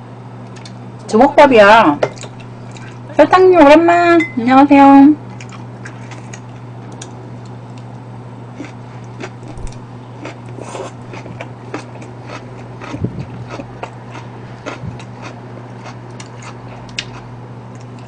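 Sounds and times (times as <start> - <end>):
steady low hum: 0.0 - 18.0
chewing crisp vegetables: 5.4 - 18.0.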